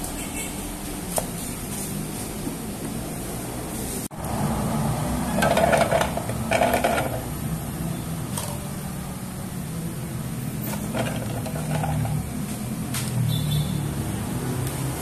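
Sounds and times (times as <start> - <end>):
ginger chunks clattering into bowl: 5.3 - 7.3, 10.7 - 12.2.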